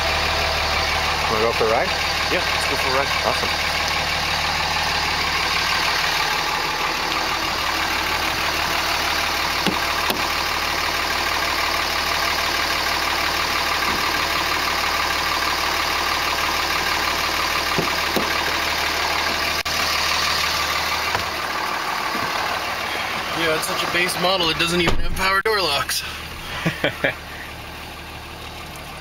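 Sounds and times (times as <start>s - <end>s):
diesel engine idling: 0.0s - 29.0s.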